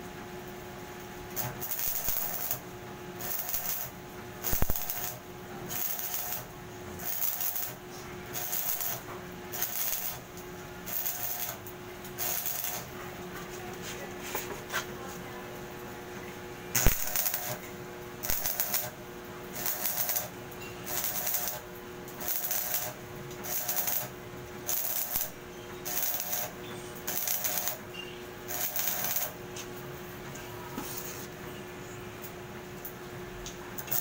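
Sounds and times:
steady hum: 0:00.0 - 0:34.0
welding arc crackling: 0:01.1 - 0:12.9, 0:16.7 - 0:29.7, 0:33.8 - 0:34.0.

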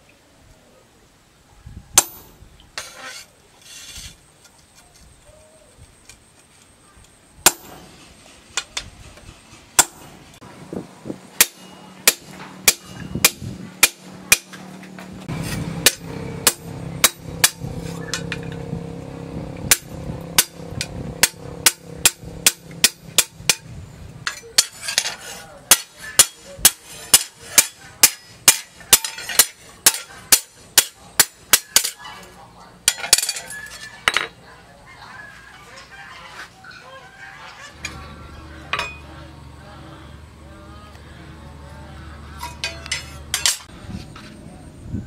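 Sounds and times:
hammer striking steel on anvil: 0:02.0 - 0:02.3, 0:07.4 - 0:07.9, 0:09.8 - 0:10.2, 0:11.4 - 0:14.6, 0:15.4 - 0:18.6, 0:19.7 - 0:23.6, 0:24.2 - 0:32.0, 0:42.4 - 0:43.7
steady low hum: 0:06.0 - 0:31.6, 0:37.8 - 0:45.0.

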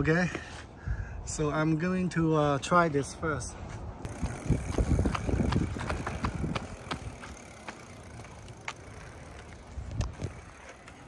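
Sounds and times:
electric bike rumble: 0:04.0 - 0:11.0.

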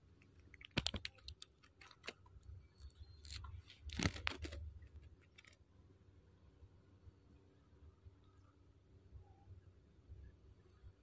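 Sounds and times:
clicks crinkles and rustles: 0:00.3 - 0:05.6.

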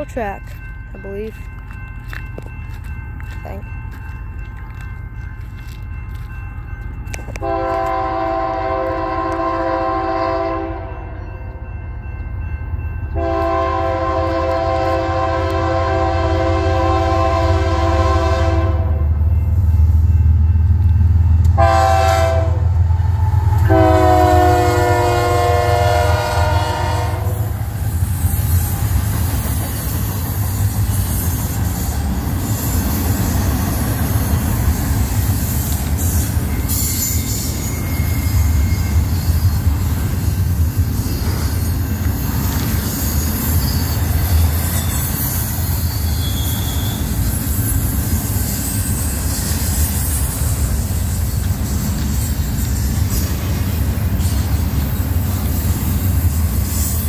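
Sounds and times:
locomotive air horn: 0:07.4 - 0:11.0, 0:13.2 - 0:19.0, 0:21.6 - 0:22.7, 0:23.6 - 0:27.6.

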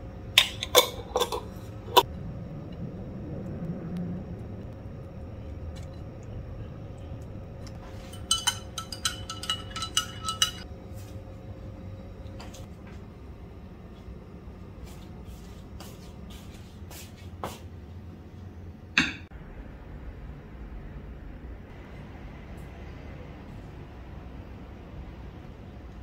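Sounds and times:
dishes and cutlery clinking: 0:00.4 - 0:02.0, 0:07.7 - 0:10.7.

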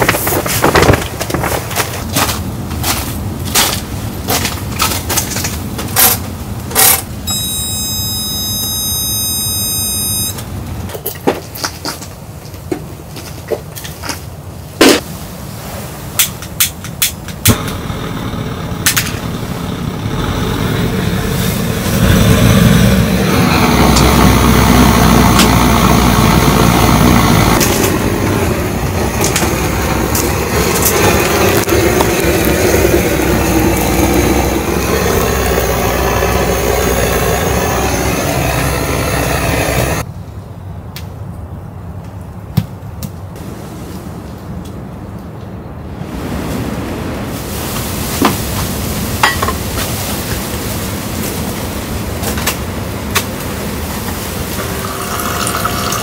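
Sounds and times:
gas torch roaring: 0:06.8 - 0:10.5, 0:17.4 - 0:40.1, 0:50.2 - 0:56.0.

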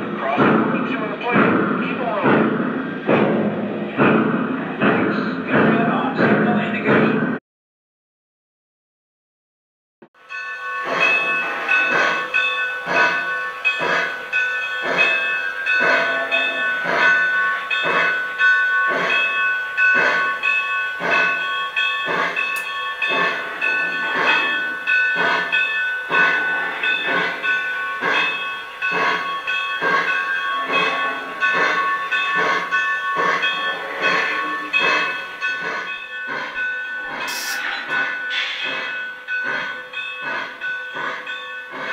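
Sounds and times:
model locomotive steam chuffs: 0:10.3 - 0:41.9.

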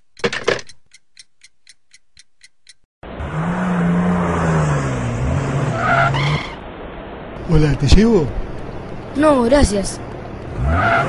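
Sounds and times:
clock ticking: 0:00.0 - 0:02.9.

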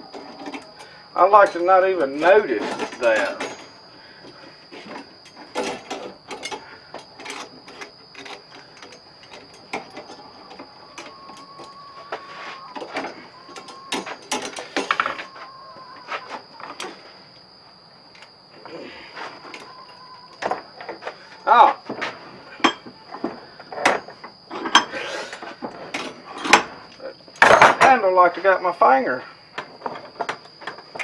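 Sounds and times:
metal trap clinking and rattling: 0:01.4 - 0:03.9, 0:05.1 - 0:11.8.

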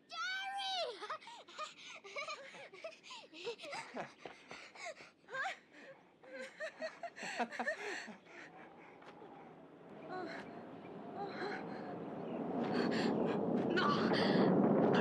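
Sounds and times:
man and woman laughing: 0:02.0 - 0:04.3, 0:06.3 - 0:08.6.

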